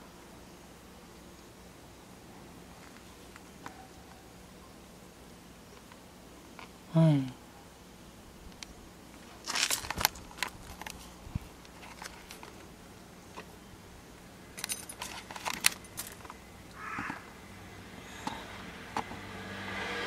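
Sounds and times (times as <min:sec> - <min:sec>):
metallic clicking and jangling: 0:14.6 - 0:16.4.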